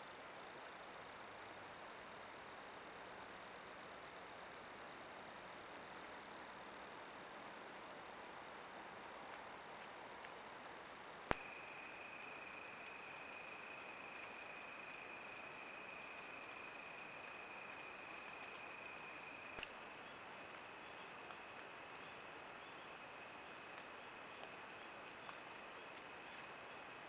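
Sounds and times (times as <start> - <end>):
light hiss: 8.8 - 27.0
crickets trilling: 11.4 - 27.0.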